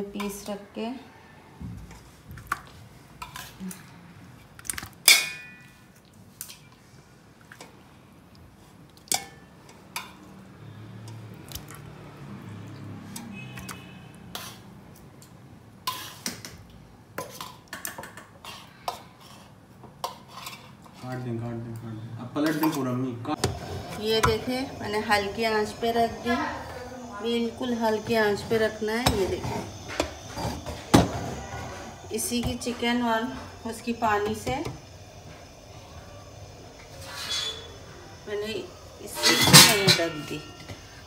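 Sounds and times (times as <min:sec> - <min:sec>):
metal pot clinking: 0:05.0 - 0:05.8, 0:39.0 - 0:40.9.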